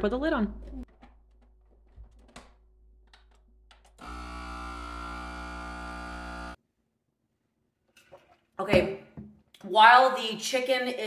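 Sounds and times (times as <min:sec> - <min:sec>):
vacuum sealer pump humming: 0:04.0 - 0:06.6.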